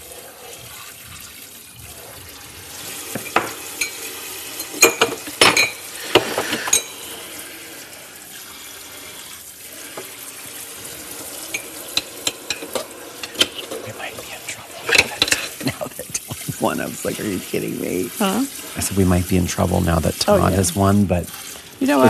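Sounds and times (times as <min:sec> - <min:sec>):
running water: 0:00.0 - 0:22.0
dishes clinking at sink: 0:03.1 - 0:07.1, 0:11.4 - 0:13.9, 0:14.9 - 0:16.5.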